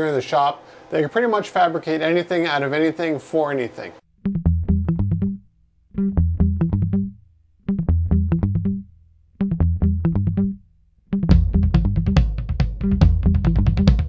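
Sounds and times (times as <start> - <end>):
electronic music riff: 4.2 - 5.4, 6.0 - 14.0.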